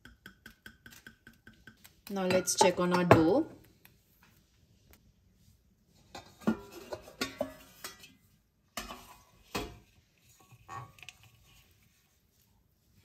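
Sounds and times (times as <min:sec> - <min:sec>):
steel lid clanking on metal bowl: 0:06.1 - 0:08.2, 0:08.8 - 0:09.8.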